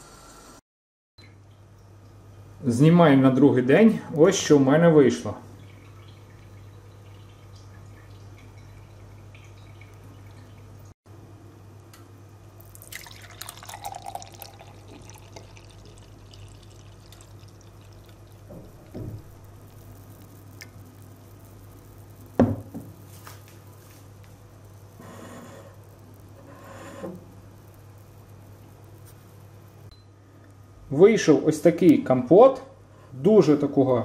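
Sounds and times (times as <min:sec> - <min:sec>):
steady low hum: 0:01.2 - 0:34.0
liquid pouring into a glass: 0:12.6 - 0:20.9
glass knocking on a table: 0:18.5 - 0:19.2, 0:22.4 - 0:22.9
soft thump: 0:18.5 - 0:19.3.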